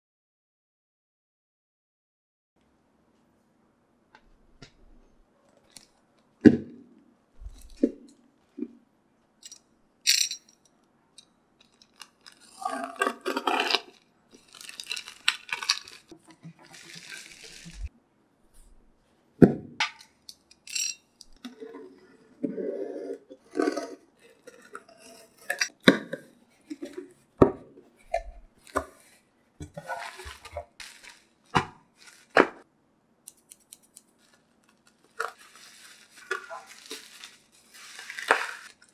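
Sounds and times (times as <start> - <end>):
packaging crinkling and tearing: 11.6 - 17.9, 29.8 - 32.5, 33.4 - 38.9.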